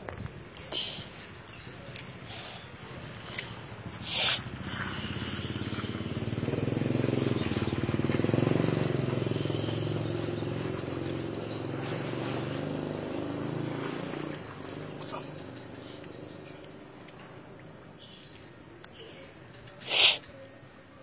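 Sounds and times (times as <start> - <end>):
engine running steadily: 0.0 - 17.9.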